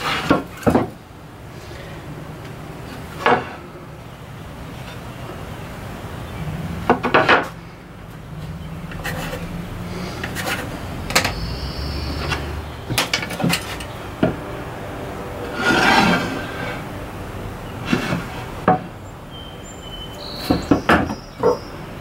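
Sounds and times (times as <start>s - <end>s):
hand plane shaving wood: 15.4s - 16.8s.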